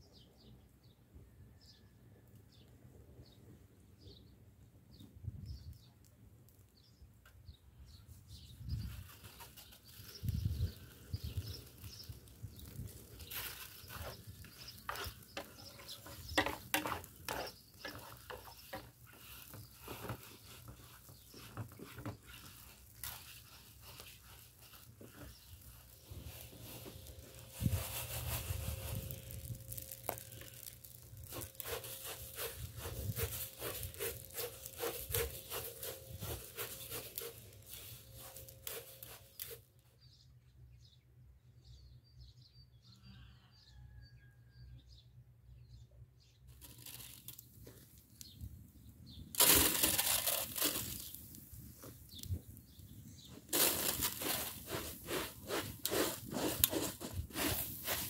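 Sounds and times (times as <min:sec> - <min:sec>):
rice grains scraped around tray: 0:11.2 - 0:39.6, 0:53.5 - 0:58.0
cloth rubbing aluminium tray: 0:13.4 - 0:39.6, 0:53.6 - 0:58.0.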